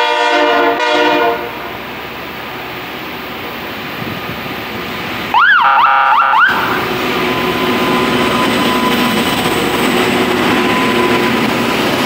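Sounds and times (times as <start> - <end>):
train rushing noise: 0.0 - 12.0
warning siren wailing: 5.3 - 11.6.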